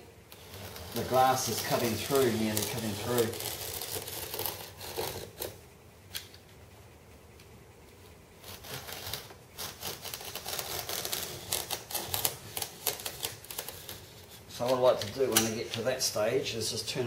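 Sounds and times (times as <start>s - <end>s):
knife scratching through fibreglass: 0.3s - 5.5s, 8.4s - 14.8s.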